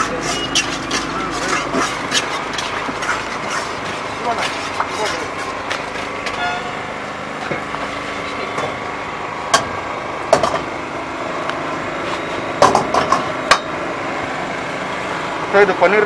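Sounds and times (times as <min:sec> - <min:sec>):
metal utensils clanking on woks: 0:00.0 - 0:05.6
steady background hum: 0:00.0 - 0:16.0.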